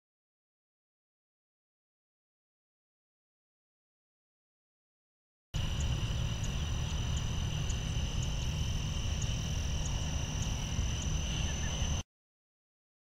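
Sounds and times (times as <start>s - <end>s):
faint ticking: 5.6s - 11.2s
crickets trilling: 5.6s - 12.0s.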